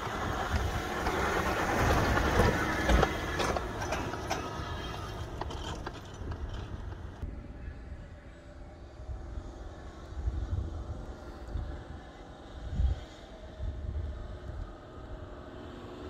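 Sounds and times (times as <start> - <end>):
knocks and rattles: 0.0 - 7.2
vehicle driving through sand: 0.0 - 16.0.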